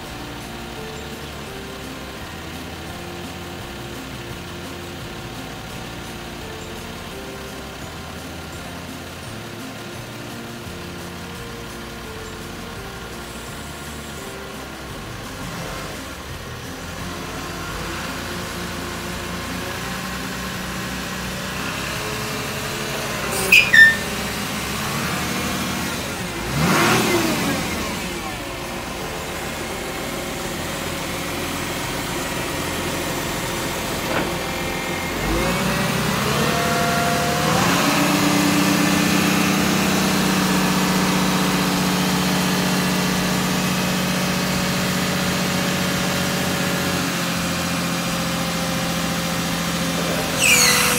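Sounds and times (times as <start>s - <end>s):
truck diesel engine running: 0.0s - 50.9s
hydraulic lift arm working: 16.5s - 43.2s, 49.4s - 50.9s.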